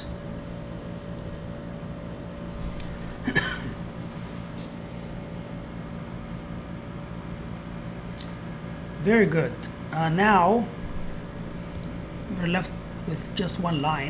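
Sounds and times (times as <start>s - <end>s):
steady background hum: 0.0s - 14.0s
man clearing throat: 3.2s - 3.8s.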